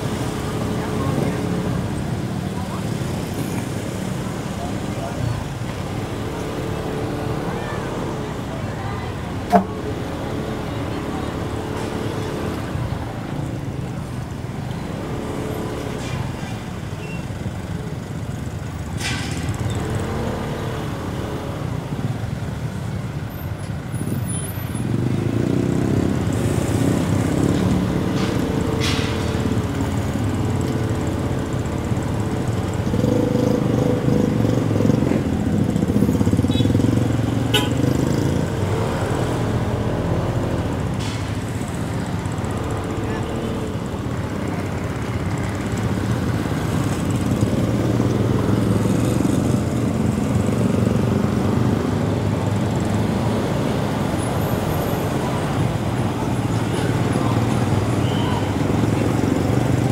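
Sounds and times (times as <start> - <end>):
road noise: 0.0 - 59.9
motorcycle engine riding: 24.8 - 59.9.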